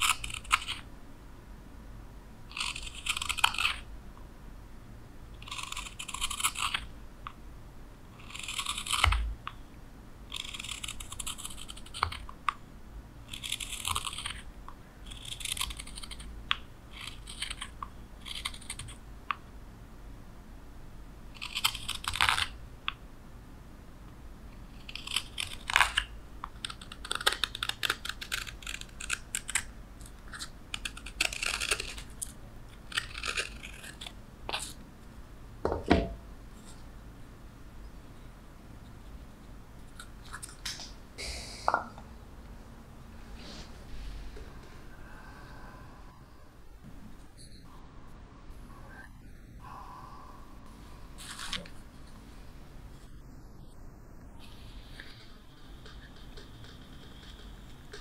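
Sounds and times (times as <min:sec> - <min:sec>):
knife scraping wood: 0:32.9 - 0:34.8.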